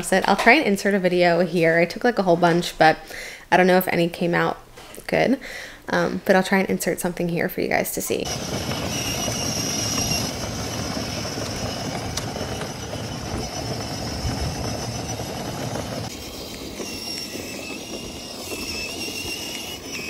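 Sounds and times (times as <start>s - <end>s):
wheels rolling on asphalt: 8.1s - 20.0s
electric motor whine: 8.2s - 20.0s.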